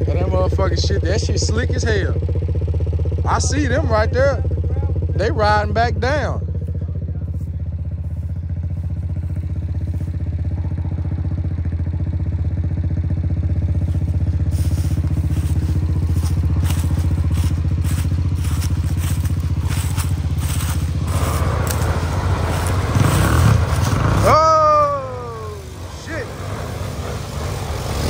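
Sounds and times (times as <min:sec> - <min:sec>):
atv engine idling: 0:00.0 - 0:28.0
second atv engine approaching: 0:00.0 - 0:28.0
crackles and scrapes: 0:13.9 - 0:24.0.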